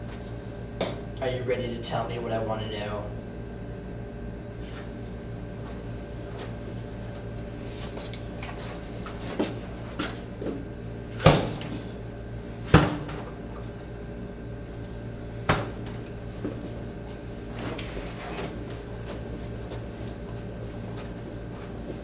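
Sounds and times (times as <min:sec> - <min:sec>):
steady low hum: 0:00.0 - 0:22.0
sharp knocks and thuds: 0:15.4 - 0:15.8.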